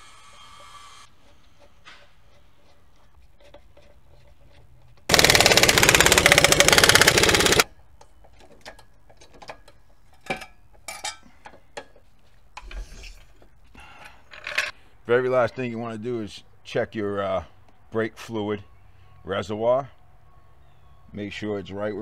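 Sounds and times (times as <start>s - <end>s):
impact wrench rattling: 5.1s - 7.7s.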